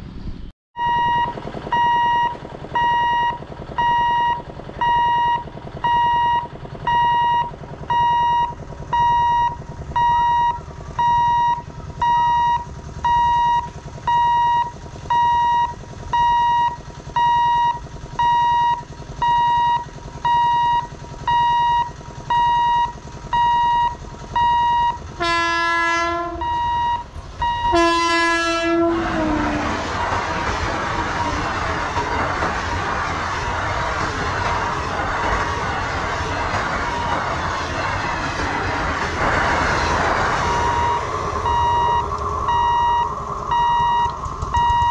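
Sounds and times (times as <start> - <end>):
level crossing beeper: 0.8 - 30.1, 39.5 - 44.9
train passing at speed: 24.1 - 44.9
train horn blasts: 25.2 - 26.6, 27.5 - 29.8.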